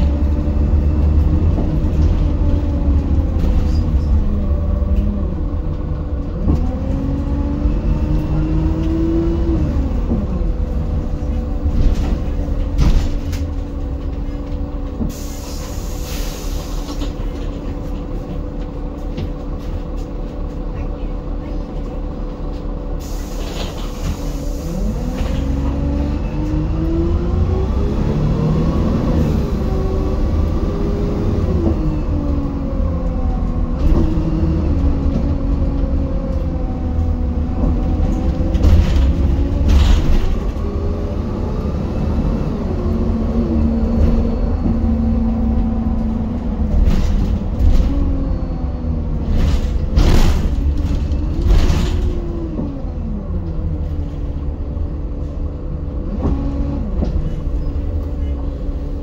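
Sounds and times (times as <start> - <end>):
bus diesel engine accelerating: 0.0 - 59.0.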